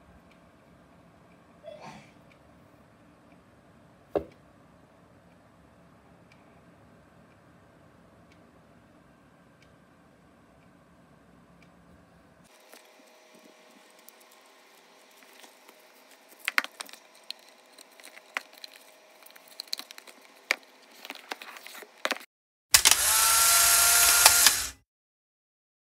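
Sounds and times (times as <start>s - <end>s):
packaging rustling: 13.5s - 22.3s.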